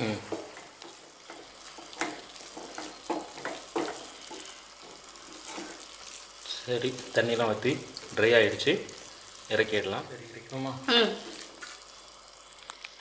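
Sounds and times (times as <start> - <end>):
wooden spatula scraping pan: 0.0 - 6.0
food sizzling in a pan: 0.0 - 13.0
spatula knocking against pan: 0.3 - 5.0.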